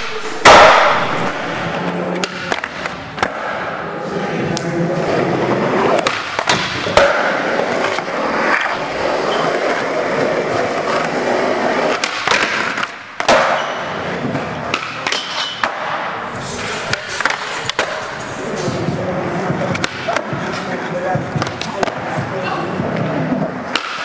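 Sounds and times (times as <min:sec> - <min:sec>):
skateboard pops and clacks: 0:00.4 - 0:01.2, 0:05.9 - 0:08.1, 0:11.9 - 0:13.7, 0:23.7 - 0:24.0
skateboard wheels rolling: 0:01.1 - 0:24.0.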